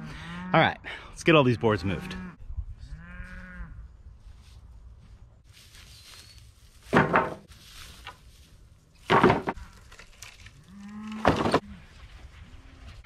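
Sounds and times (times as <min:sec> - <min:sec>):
cow mooing: 0:00.1 - 0:00.7, 0:01.4 - 0:03.8, 0:10.6 - 0:11.8
wooden boards clattering: 0:06.9 - 0:07.5, 0:09.0 - 0:10.5, 0:11.1 - 0:11.6.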